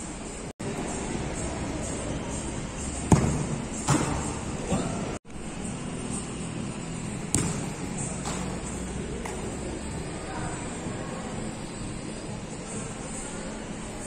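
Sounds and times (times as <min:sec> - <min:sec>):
background hum: 0:00.0 - 0:14.0
football kicked hard: 0:03.1 - 0:04.4, 0:07.2 - 0:08.4.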